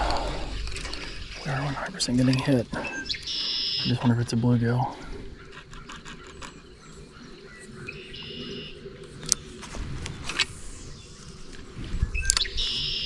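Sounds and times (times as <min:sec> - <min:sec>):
open-air ambience: 0:00.0 - 0:13.0
songbird buzzy call: 0:02.8 - 0:04.0, 0:07.5 - 0:08.8, 0:12.2 - 0:13.0.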